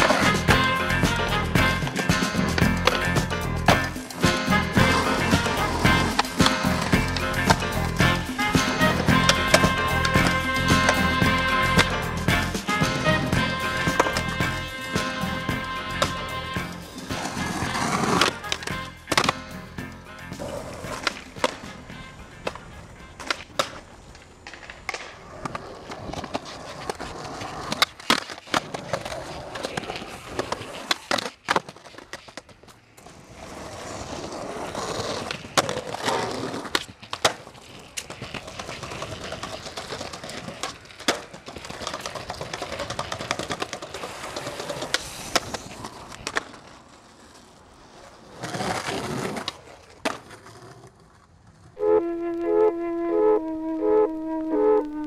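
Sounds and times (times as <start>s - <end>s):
background music: 0.0s - 23.4s, 51.8s - 55.0s
skateboard clacks: 0.0s - 51.7s
skateboard wheels rolling: 0.0s - 55.0s.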